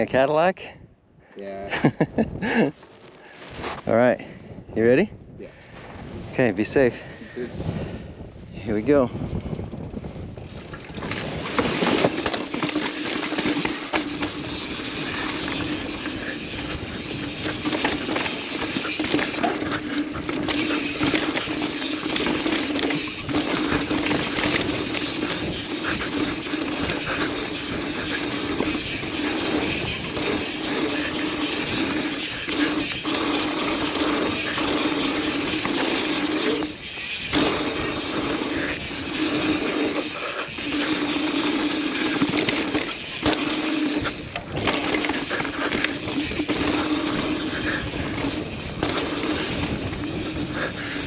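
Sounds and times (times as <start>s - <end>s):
bike freewheel ratchet buzz: 8.8s - 51.0s
bike knocks and chain rattle: 8.8s - 51.0s
tyre noise on dirt: 10.4s - 51.0s.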